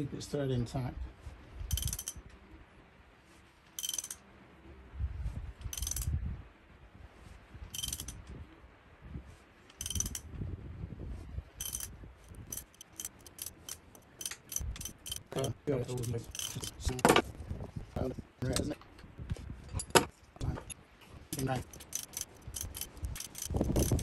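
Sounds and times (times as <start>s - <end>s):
socket ratchet clicking: 1.7s - 2.2s, 3.8s - 4.2s, 5.7s - 6.1s, 7.7s - 8.2s, 9.7s - 10.2s, 11.6s - 16.8s, 21.4s - 24.0s.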